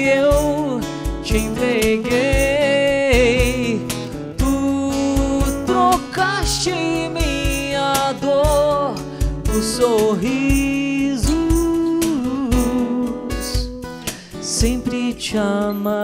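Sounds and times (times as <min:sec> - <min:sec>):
acoustic guitars: 0:00.0 - 0:16.0
man singing: 0:00.0 - 0:16.0.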